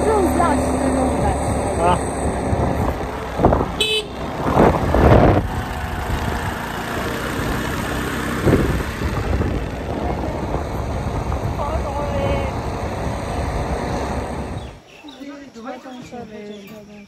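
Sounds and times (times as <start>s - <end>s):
scooter engine and road noise: 0.0s - 14.9s
wind buffeting microphone: 0.0s - 14.9s
vehicle horn toot: 3.8s - 4.3s.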